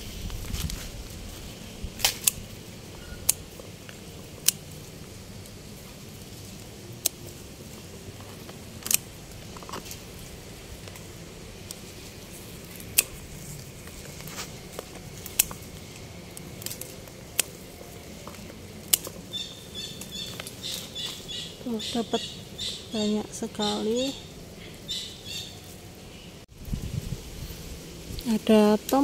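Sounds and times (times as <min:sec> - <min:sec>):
rustle of stems handled: 0:00.0 - 0:29.0
garden scissors snipping stems: 0:01.9 - 0:24.2, 0:28.2 - 0:29.0.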